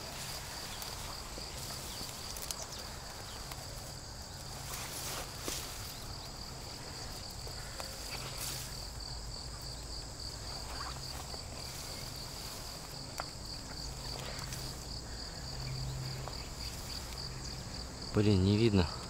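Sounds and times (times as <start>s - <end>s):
insect trill: 0.0s - 19.0s
light clicks and rustles: 0.2s - 6.4s.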